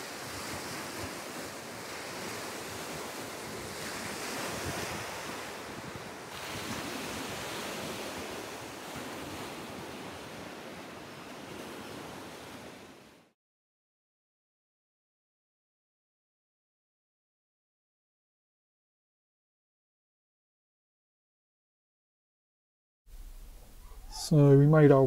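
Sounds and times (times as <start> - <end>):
wind on microphone: 0.0 - 13.0
sea surf washing on beach: 0.0 - 13.4.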